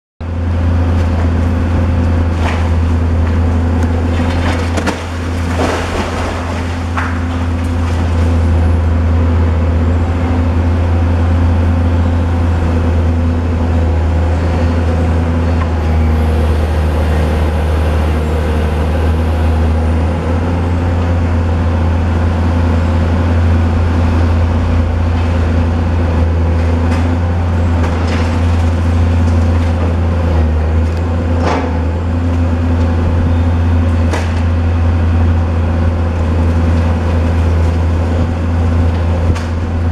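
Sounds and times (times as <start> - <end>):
excavator diesel engine running: 0.2 - 39.9
building material cracking: 2.2 - 8.6, 26.8 - 30.2.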